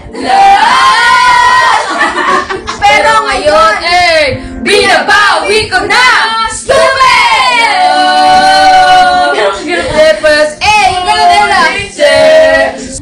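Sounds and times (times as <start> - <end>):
women singing karaoke: 0.0 - 13.0.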